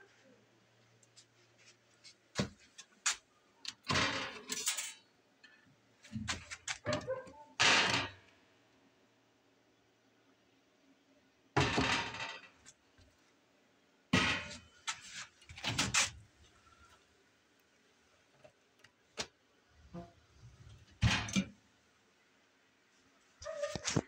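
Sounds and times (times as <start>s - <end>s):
metal parts rattling: 3.8s - 5.0s.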